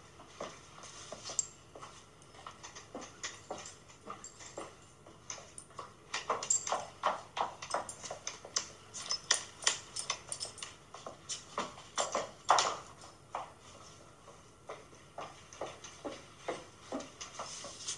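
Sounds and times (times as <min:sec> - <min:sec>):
high heels clicking on tiles: 0:01.4 - 0:17.5.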